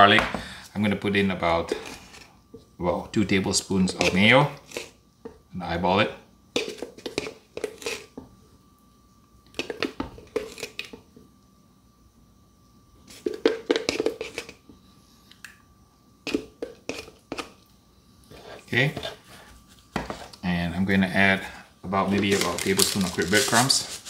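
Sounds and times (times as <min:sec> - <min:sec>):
spatula scraping jar: 0:06.6 - 0:08.2, 0:13.1 - 0:14.6, 0:16.3 - 0:17.5.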